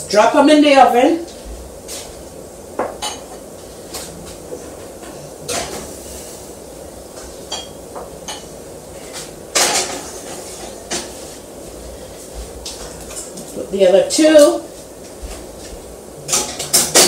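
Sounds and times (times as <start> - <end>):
pans clanking in oven: 2.8 - 6.3, 7.1 - 11.4, 16.2 - 17.0.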